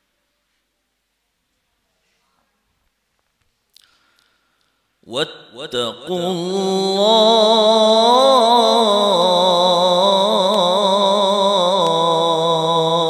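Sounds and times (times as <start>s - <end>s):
man reciting melodically through microphone: 5.0s - 13.0s.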